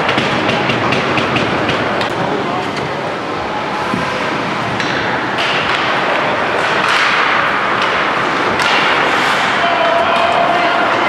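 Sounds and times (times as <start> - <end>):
hockey sticks and puck clacking: 0.0 - 2.9, 3.7 - 11.0
skates scraping on ice: 3.7 - 11.0.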